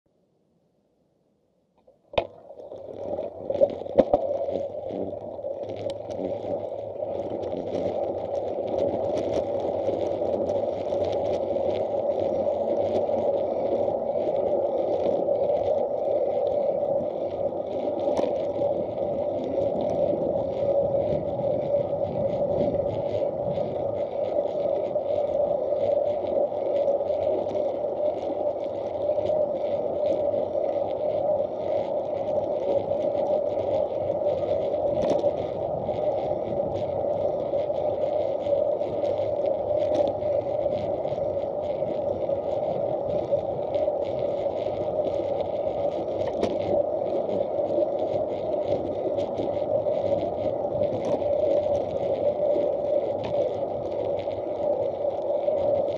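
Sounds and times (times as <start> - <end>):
wheels rolling on asphalt: 1.9 - 55.9
small rattles and ticks: 2.1 - 55.9.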